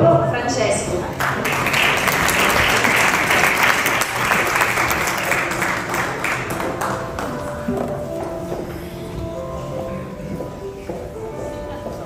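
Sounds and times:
audience applauding: 1.0s - 7.7s.

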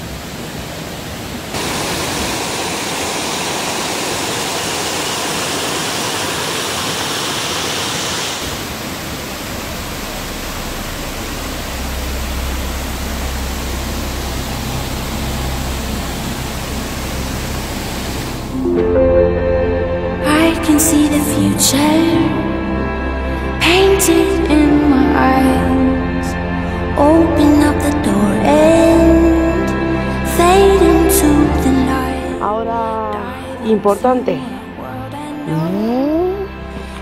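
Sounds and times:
waterfall rushing over a weir: 0.0s - 18.6s
low rumble: 9.1s - 23.8s.

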